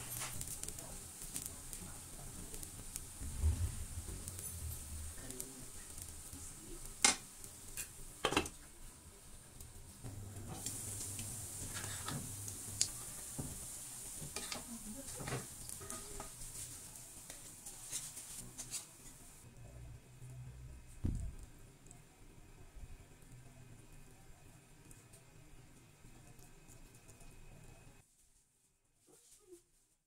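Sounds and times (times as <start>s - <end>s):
batter sizzling in a pan: 0.0s - 19.5s
metal fork and spatula scraping pan: 11.6s - 12.2s, 14.3s - 16.4s.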